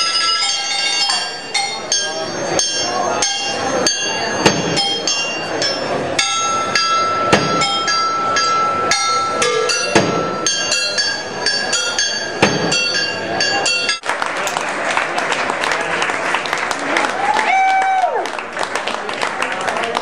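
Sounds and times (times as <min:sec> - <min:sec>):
metal percussion strikes ringing: 0:00.0 - 0:14.8.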